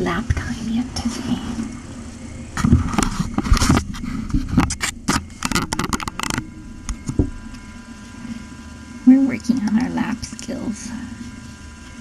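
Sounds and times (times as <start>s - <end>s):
faint steady hum: 0.0s - 12.0s
microphone handling knocks and scrapes: 2.6s - 7.4s.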